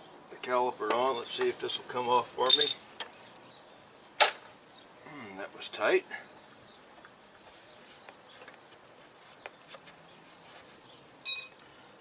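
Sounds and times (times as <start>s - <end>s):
steel tool clinking on metal: 2.4s - 2.8s, 11.2s - 11.6s.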